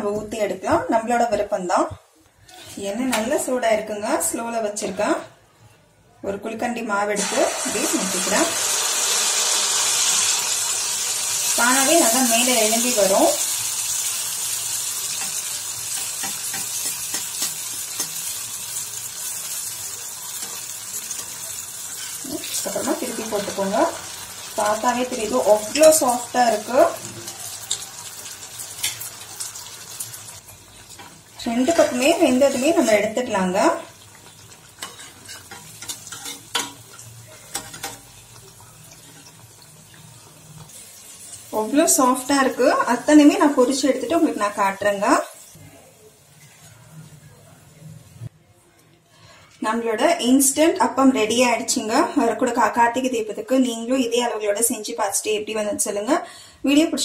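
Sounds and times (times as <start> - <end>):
batter sizzling in hot oil: 7.2 - 47.2.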